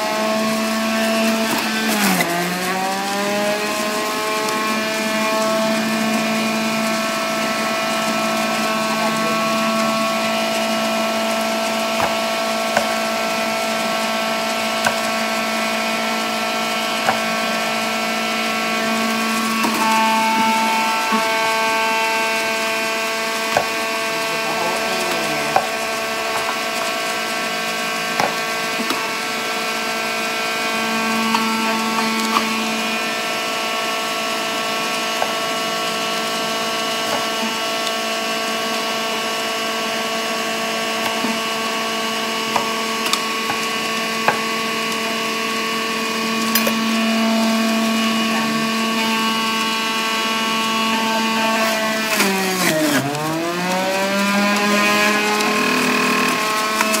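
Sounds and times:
cutter grinding fruit: 0:00.0 - 0:57.0
juicer motor whining: 0:00.0 - 0:57.0.

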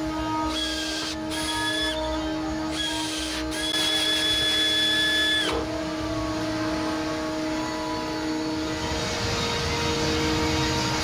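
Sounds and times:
cordless drill whining: 0:00.0 - 0:05.7.

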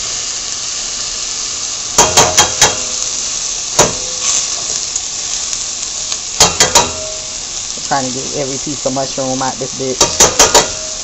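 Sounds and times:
onions sizzling in oil: 0:00.0 - 0:11.0
metallic clinks against pot: 0:10.0 - 0:10.8.

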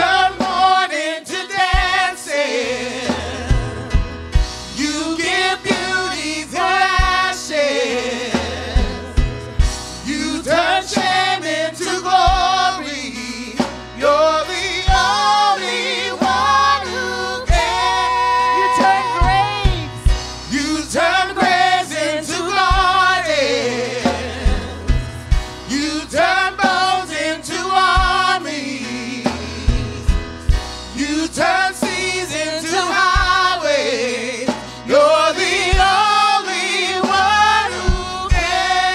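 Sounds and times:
keyboard: 0:00.0 - 0:38.9
man singing: 0:00.0 - 0:38.9
woman singing: 0:14.9 - 0:20.1
kick drum: 0:37.9 - 0:38.6.

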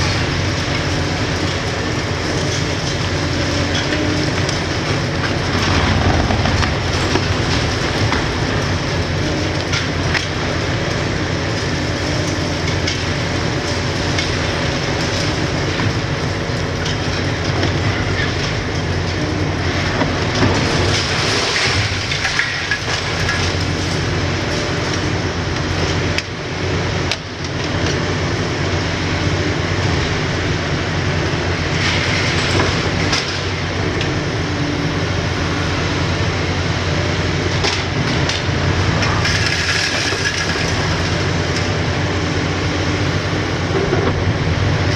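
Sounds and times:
falling debris clatter: 0:00.0 - 0:11.8, 0:12.6 - 0:24.1, 0:37.6 - 0:41.8
diesel engine under load: 0:00.0 - 0:44.9
hydraulic crusher breaking concrete: 0:02.5 - 0:10.5, 0:16.8 - 0:24.0, 0:37.6 - 0:41.7.

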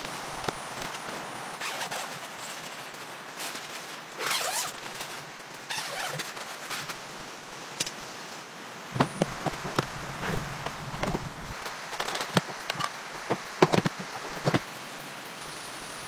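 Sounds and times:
steady background hiss: 0:00.0 - 0:16.0
tent zipper rasping: 0:01.6 - 0:07.1
plastic box clicks and knocks: 0:12.0 - 0:14.6.

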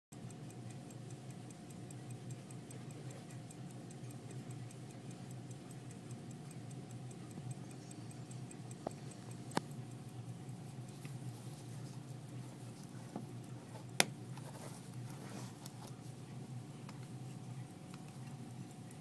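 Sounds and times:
pocket watch ticking: 0:00.1 - 0:15.8, 0:16.4 - 0:19.0
low steady hum: 0:00.2 - 0:19.0
sharp clicks: 0:05.4 - 0:14.3.

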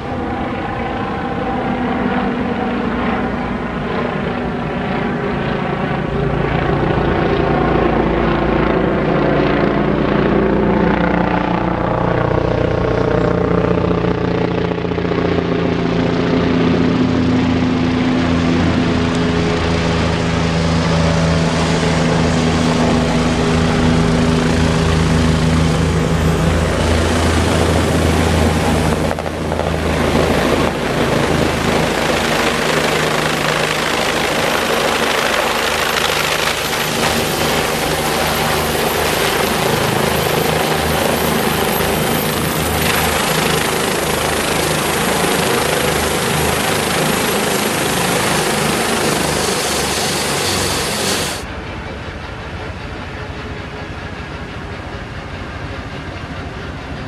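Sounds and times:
helicopter turbine whine and rotor: 0:00.0 - 0:57.0
rushing rotor wash: 0:20.8 - 0:51.8.

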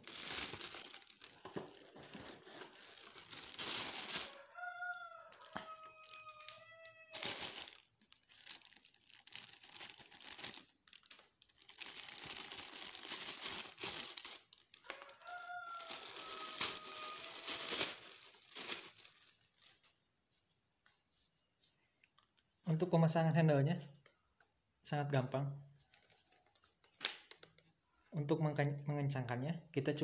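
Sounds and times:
plastic packaging crinkling: 0:00.0 - 0:20.0
chicken calling: 0:04.2 - 0:07.3, 0:14.8 - 0:17.7.

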